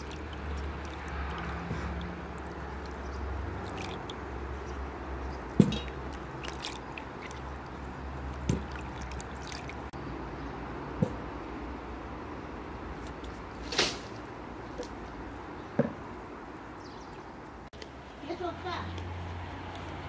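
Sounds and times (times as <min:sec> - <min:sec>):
water splashing in bowl: 0:00.0 - 0:10.0.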